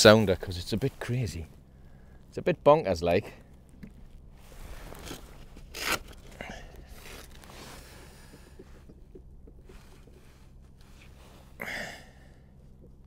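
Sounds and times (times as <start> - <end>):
clothing rustling: 4.0 - 11.6
short scraping rasp: 4.7 - 7.8.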